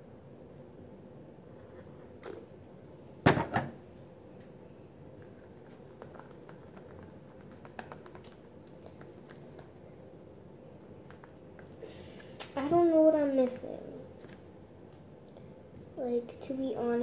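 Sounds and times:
plastic bottle set down on table: 3.3s - 3.7s
faint clicks and taps: 5.2s - 9.7s.

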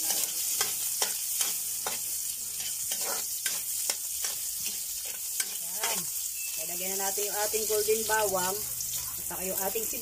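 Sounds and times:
metal spatula scraping a wok: 0.0s - 8.0s
onion and garlic sizzling in oil: 0.0s - 10.0s.

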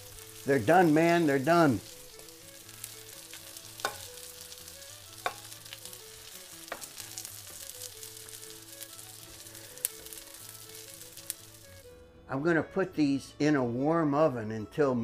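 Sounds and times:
fish sizzling in a skillet: 0.0s - 11.9s
spatula scraping a skillet: 1.9s - 11.4s.

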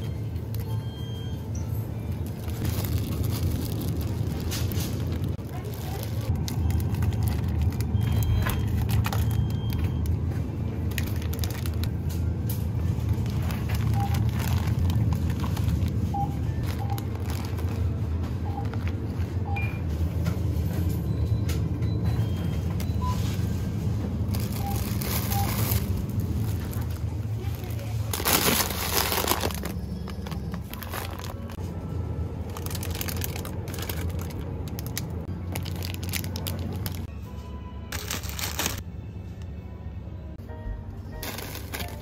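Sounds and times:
light background music: 0.0s - 42.0s
plastic food packs crinkling: 2.2s - 18.0s, 24.3s - 31.6s, 32.4s - 37.1s, 37.9s - 38.8s, 41.2s - 42.0s.

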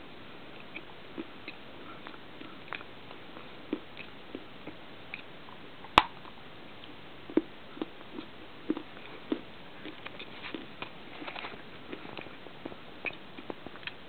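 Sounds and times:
clay being chewed with crunches: 0.5s - 14.0s.

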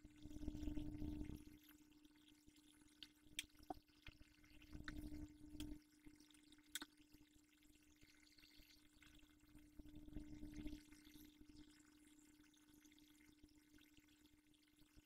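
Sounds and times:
faint room hum: 0.0s - 15.0s
soft ticks: 4.8s - 5.8s.

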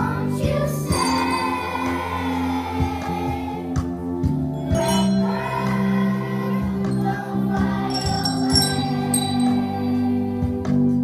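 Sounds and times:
children's choir singing: 0.0s - 3.9s, 4.6s - 11.0s
bells and triangle ringing: 0.9s - 2.3s, 4.6s - 10.3s
instrumental accompaniment: 4.2s - 10.3s.

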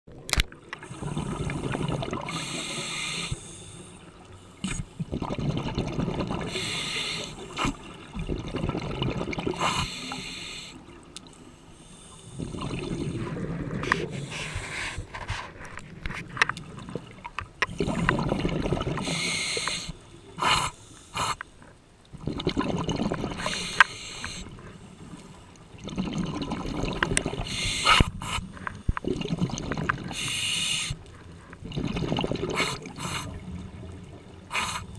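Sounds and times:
exhaled bubbles underwater: 0.1s - 3.5s, 4.6s - 11.2s, 12.3s - 14.9s, 16.6s - 19.7s, 22.1s - 24.5s, 25.6s - 28.2s, 28.9s - 30.4s, 31.6s - 34.8s
regulator inhale hiss: 2.3s - 4.9s, 6.5s - 7.8s, 9.6s - 10.8s, 11.4s - 12.6s, 13.2s - 15.1s, 19.0s - 21.6s, 23.4s - 25.2s, 27.4s - 29.0s, 30.1s - 31.1s, 32.6s - 33.4s, 34.5s - 34.9s.

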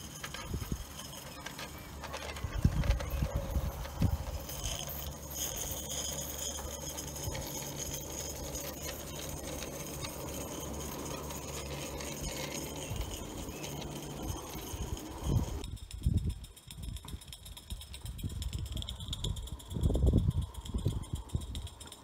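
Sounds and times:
model train wheels clicking on rail joints: 0.0s - 22.0s
steady low hum: 0.0s - 22.0s.

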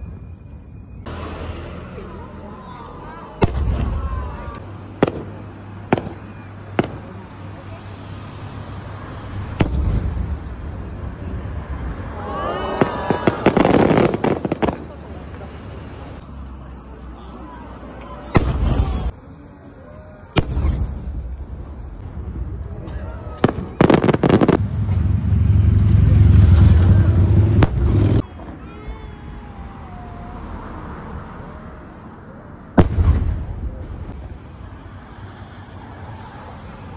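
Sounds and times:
faint wavering whistles: 0.0s - 4.6s, 5.2s - 9.7s
firework bangs and crackling: 0.0s - 30.6s, 32.0s - 36.9s
firework boom: 3.4s - 7.1s, 9.5s - 10.8s, 18.2s - 19.1s, 20.4s - 28.7s, 32.8s - 34.4s
low rumble: 20.4s - 28.2s.

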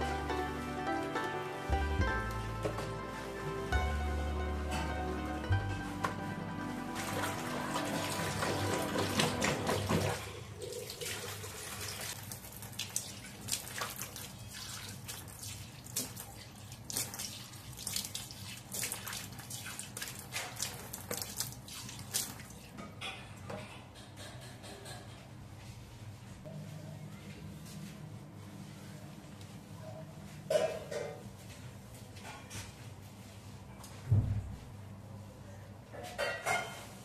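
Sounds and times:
tap water running into sink: 7.0s - 22.5s
water drips and splashes: 7.1s - 22.8s.

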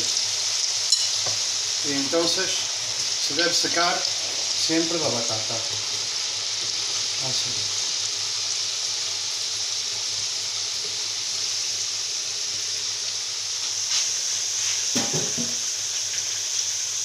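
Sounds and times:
potatoes sizzling in oil: 0.0s - 17.0s.

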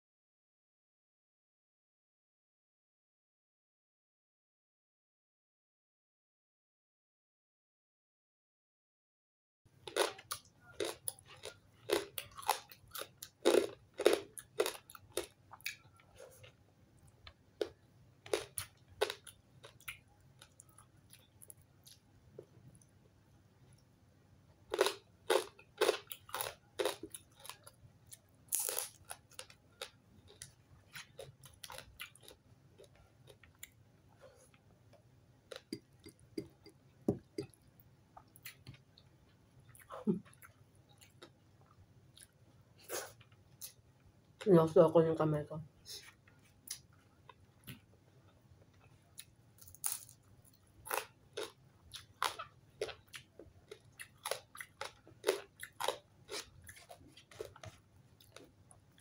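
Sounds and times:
chewing crispy fried fish: 9.8s - 22.9s, 24.7s - 43.8s, 46.0s - 59.0s.

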